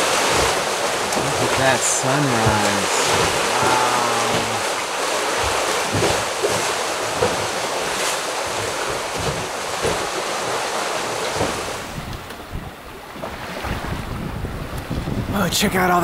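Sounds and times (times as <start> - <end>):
ocean waves rushing: 0.0 - 16.0
wind buffeting the microphone: 11.1 - 16.0.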